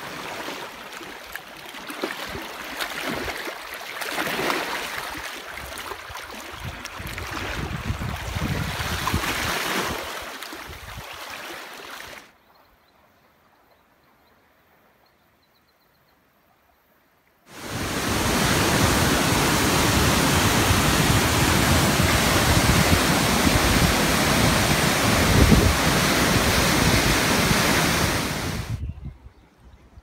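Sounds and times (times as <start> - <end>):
waterfall rushing: 17.5 - 28.8.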